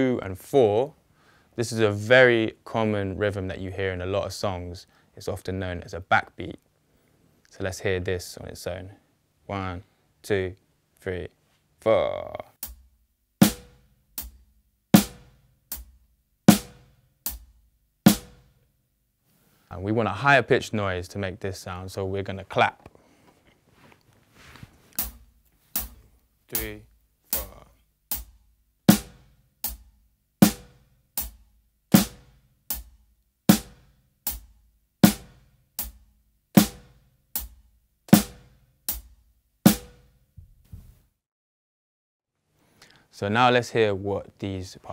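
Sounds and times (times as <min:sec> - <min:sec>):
snare drum backbeat: 0:12.6 - 0:14.4, 0:15.0 - 0:18.6, 0:25.8 - 0:26.0, 0:27.4 - 0:36.0, 0:36.6 - 0:40.2
snare drum hits: 0:13.4 - 0:14.3, 0:15.0 - 0:15.4, 0:16.5 - 0:17.4, 0:32.0 - 0:32.8, 0:33.5 - 0:34.4, 0:36.6 - 0:37.5, 0:38.1 - 0:39.1, 0:39.7 - 0:40.1
kick drum: 0:27.4 - 0:41.0.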